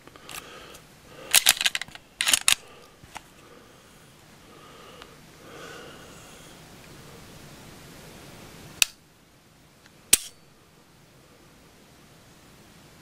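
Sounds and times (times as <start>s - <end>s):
pistol trigger clicks: 10.1s - 10.3s.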